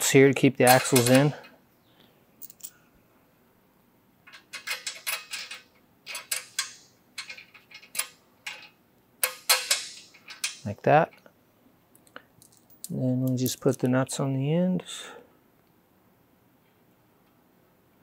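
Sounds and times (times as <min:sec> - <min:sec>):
bolts clinking against metal: 0:00.5 - 0:01.6, 0:02.4 - 0:02.8, 0:04.3 - 0:11.3, 0:12.0 - 0:13.9.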